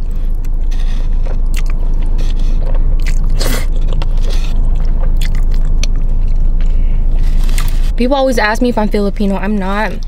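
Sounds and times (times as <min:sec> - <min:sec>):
slurping and chewing noodles: 0:00.0 - 0:06.7.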